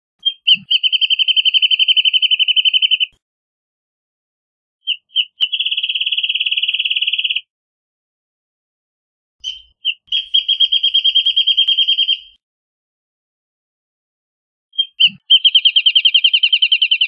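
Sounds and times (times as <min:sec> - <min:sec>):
bird trilling song: 0:00.2 - 0:03.2, 0:04.8 - 0:07.5, 0:09.4 - 0:12.4, 0:14.7 - 0:17.0.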